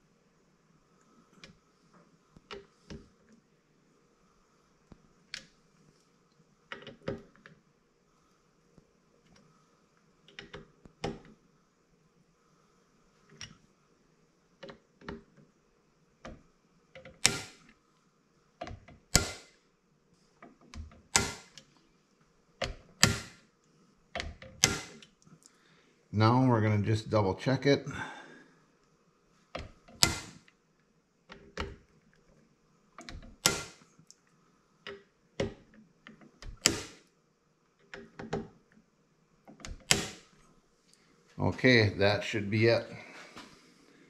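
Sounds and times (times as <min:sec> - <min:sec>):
torque driver clicking: 0:17.0 - 0:17.7, 0:36.2 - 0:37.0.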